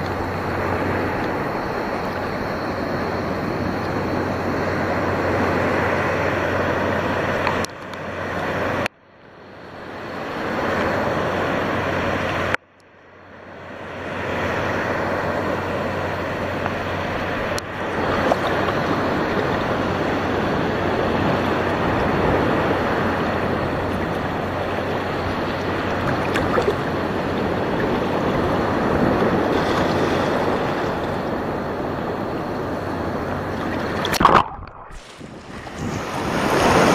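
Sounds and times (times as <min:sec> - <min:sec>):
sea water rushing: 0:00.0 - 0:12.6, 0:13.3 - 0:36.9
wind buffeting microphone: 0:15.6 - 0:36.9.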